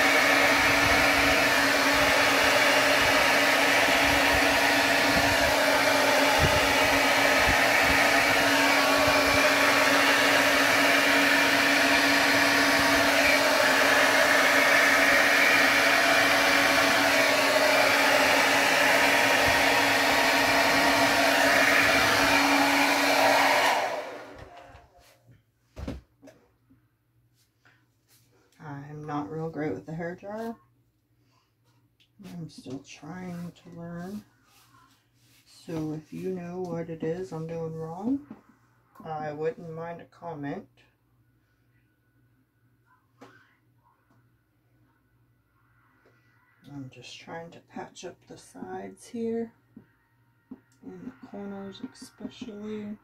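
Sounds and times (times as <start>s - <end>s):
hair dryer blowing: 0.0s - 25.0s, 32.2s - 38.4s, 46.6s - 53.0s.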